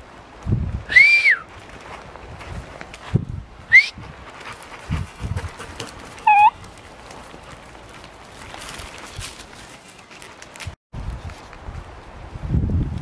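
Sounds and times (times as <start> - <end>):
dog yelping: 6.2 - 6.6.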